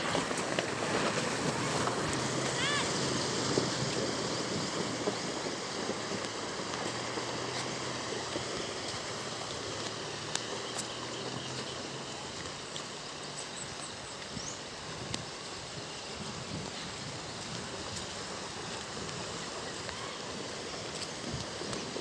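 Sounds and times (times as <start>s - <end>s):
low engine hum: 0.0s - 22.0s
water churning around wheels: 0.0s - 22.0s.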